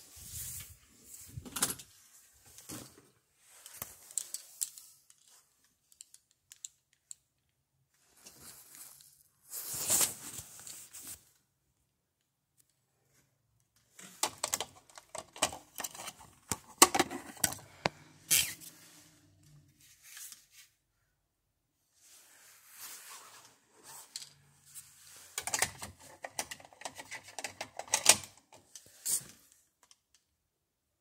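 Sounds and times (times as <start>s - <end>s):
handling clicks and rustling: 0.5s - 7.6s, 13.8s - 18.5s, 23.9s - 30.1s.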